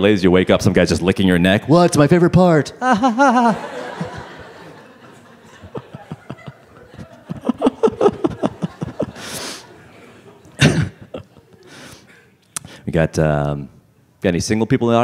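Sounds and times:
audience laughing: 0:02.8 - 0:12.0.

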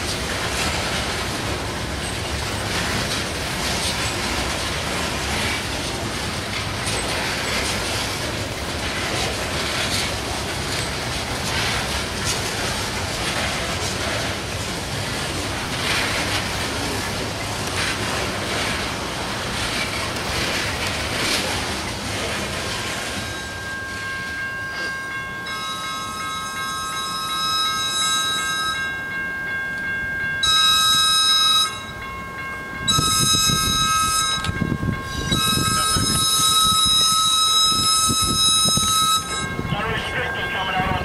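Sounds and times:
train wheels rolling on rails: 0:00.0 - 0:41.0
train horn blasts: 0:30.4 - 0:31.9, 0:32.9 - 0:39.4.

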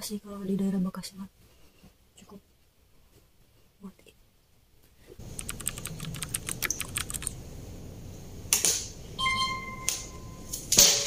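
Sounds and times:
key clicks: 0:05.2 - 0:07.4
sharp click: 0:05.4 - 0:07.3
scanner beep: 0:09.2 - 0:10.5.

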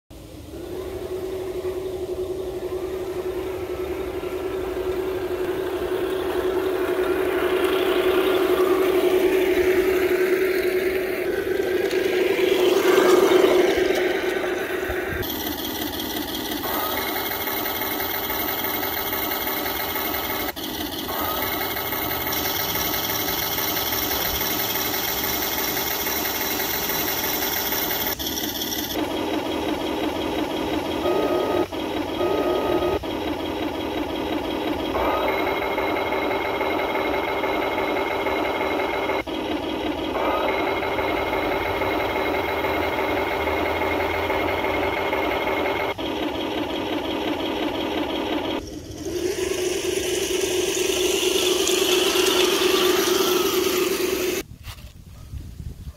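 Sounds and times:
model tank whirring and rattling: 0:00.6 - 0:54.5
wind noise on microphone: 0:54.5 - 0:55.9.

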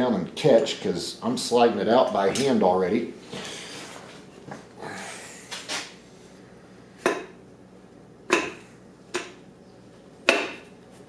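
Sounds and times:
sharp metallic knocks ringing: 0:08.3 - 0:08.6.

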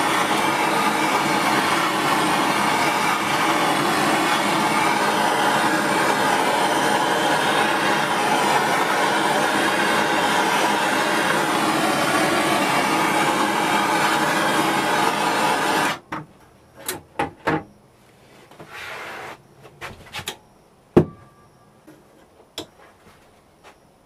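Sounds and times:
blowtorch roaring: 0:00.0 - 0:16.0.

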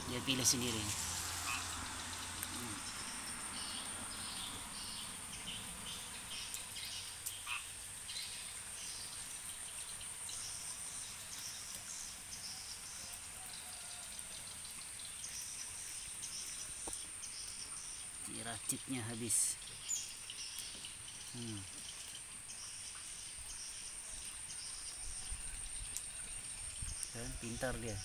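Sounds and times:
rain hissing: 0:00.0 - 0:28.0
pulsed frog calls: 0:00.2 - 0:04.8, 0:07.4 - 0:07.8.

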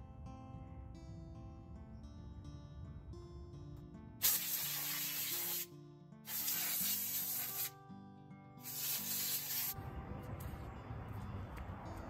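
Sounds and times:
compressed air hissing from nozzle: 0:04.2 - 0:05.7, 0:06.3 - 0:07.7, 0:08.6 - 0:09.8.

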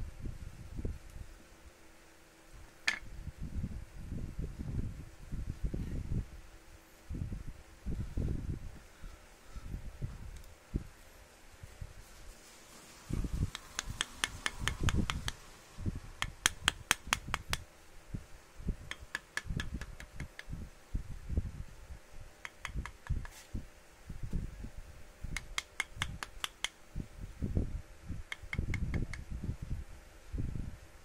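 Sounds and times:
quick light sharp taps: 0:13.5 - 0:15.4, 0:16.2 - 0:17.6, 0:22.4 - 0:23.4.

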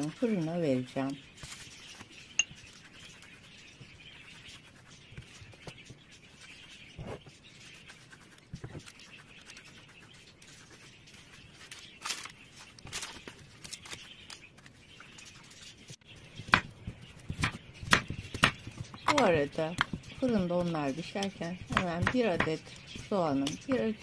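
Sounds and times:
pastry brush on eggplant slices: 0:00.0 - 0:13.3
parchment rustling: 0:00.0 - 0:24.0.

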